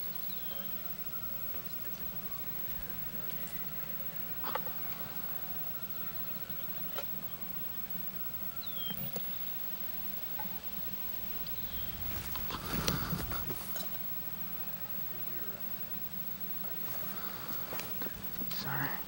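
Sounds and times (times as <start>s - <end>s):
steady low hum: 0.0s - 19.0s
rustling of dry brush and clothing: 11.3s - 14.2s.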